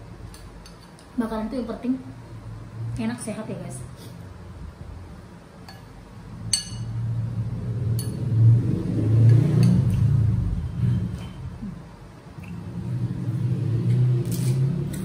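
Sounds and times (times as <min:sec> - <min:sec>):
metal spoon clinking on bowl: 0:06.5 - 0:07.0.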